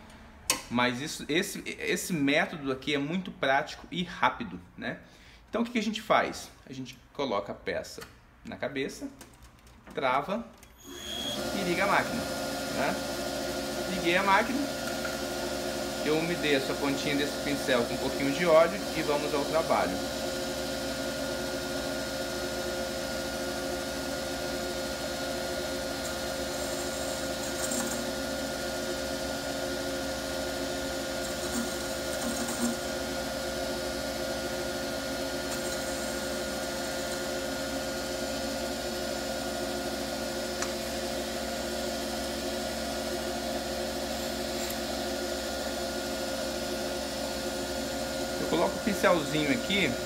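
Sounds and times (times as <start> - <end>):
lathe motor hum: 10.9 - 50.0.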